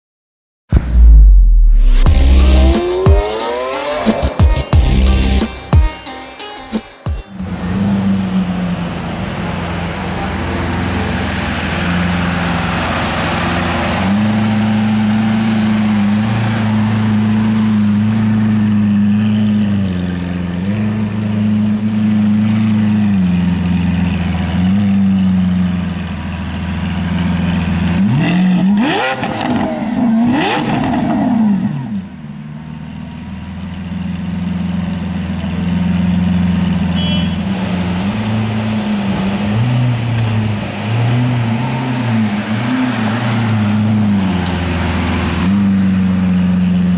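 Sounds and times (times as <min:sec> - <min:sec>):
engine revving: 0:00.7 - 0:05.6, 0:26.9 - 0:32.1
car engine idling loudly: 0:15.9 - 0:28.0, 0:32.1 - 0:37.7.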